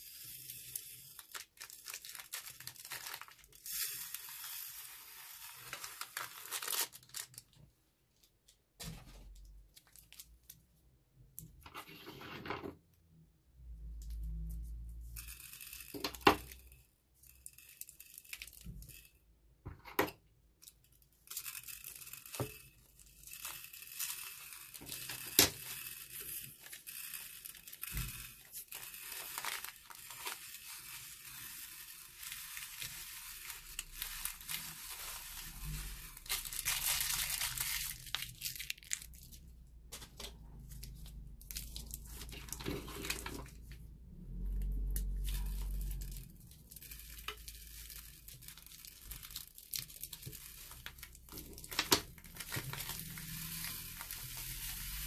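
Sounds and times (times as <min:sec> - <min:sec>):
plastic beads pattering onto glass: 0:00.2 - 0:07.5, 0:14.0 - 0:19.2, 0:20.6 - 0:44.0, 0:44.6 - 0:55.0
plastic bag crinkling: 0:01.1 - 0:04.2, 0:05.4 - 0:07.6, 0:22.3 - 0:43.8, 0:44.6 - 0:55.0.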